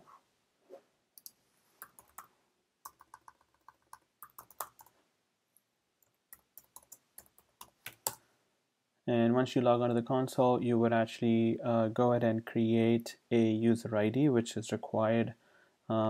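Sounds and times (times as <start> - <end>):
computer keyboard typing: 1.2 - 4.9, 6.0 - 8.2.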